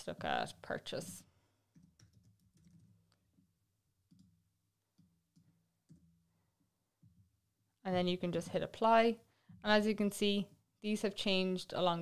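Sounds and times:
keyboard and mouse clicks: 1.7s - 6.2s.

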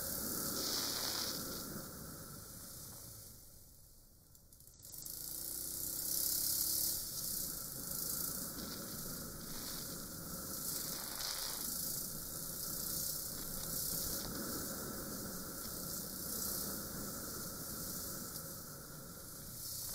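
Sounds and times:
wind hiss over microphone: 0.0s - 3.0s, 7.0s - 19.9s
motorcycle engine running: 4.7s - 11.2s.

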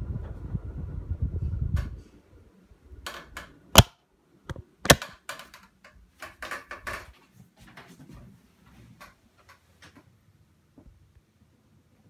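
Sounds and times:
sharp clicks and light knocks: 4.5s - 7.1s.

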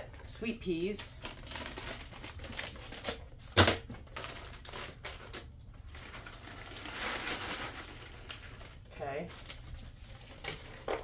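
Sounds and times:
plastic crinkling: 0.6s - 11.0s
frozen peas rattling: 4.1s - 11.0s.

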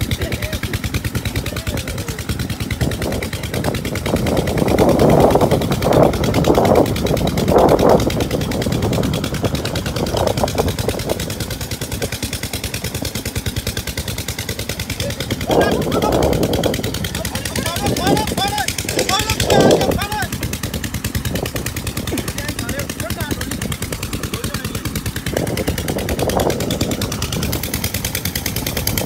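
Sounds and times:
pump engine thudding: 0.0s - 29.0s.

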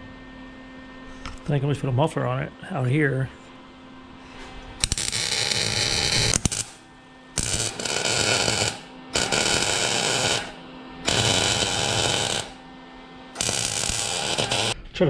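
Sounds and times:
welder arc crackling: 4.8s - 6.8s, 7.4s - 12.6s, 13.4s - 14.8s.

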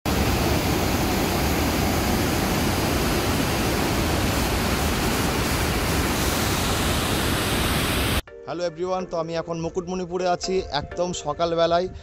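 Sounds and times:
water rushing and churning: 0.1s - 8.2s.

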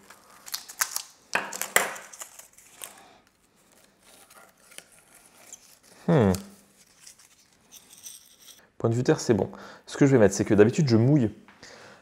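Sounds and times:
paper rustling: 0.0s - 8.3s.

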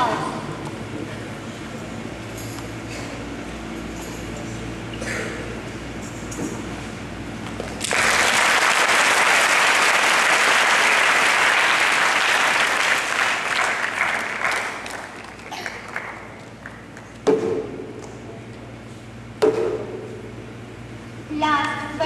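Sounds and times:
audience applauding: 7.8s - 17.0s.

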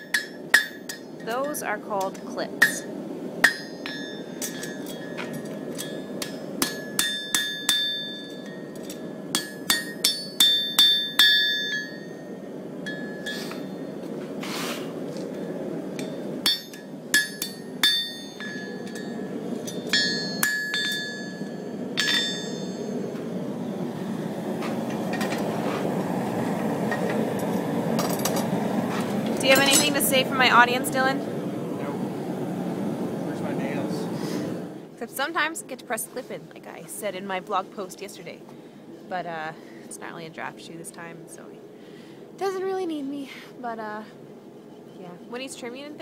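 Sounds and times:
low rushing hum: 0.0s - 46.0s
hammer ringing on anvil: 2.6s - 5.2s, 5.8s - 13.8s, 16.0s - 23.1s.

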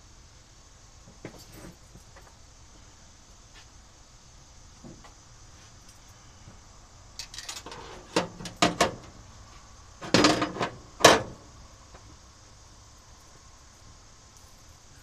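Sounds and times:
sharp knocks and clatters: 7.2s - 9.1s, 10.0s - 11.4s.

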